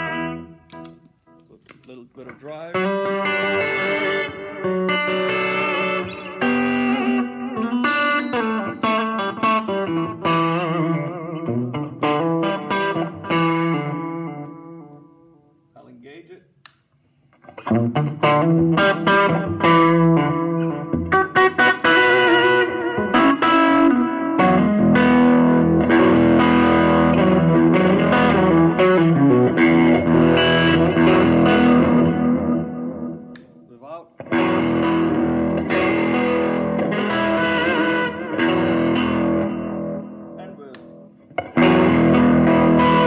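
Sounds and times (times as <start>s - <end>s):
electric guitar picked notes: 0.0s - 1.6s, 2.2s - 15.4s, 17.4s - 43.0s.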